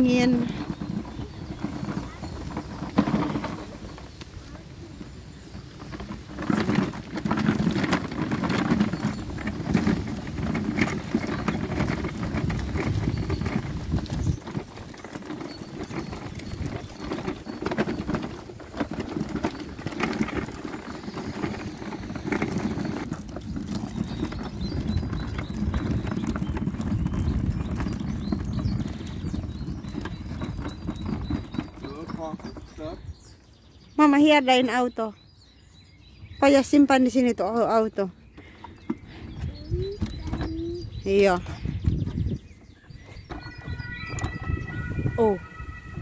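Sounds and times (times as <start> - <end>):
footsteps on a path: 0.0 - 31.8
wind rumbling on microphone: 0.0 - 34.0, 38.2 - 46.0.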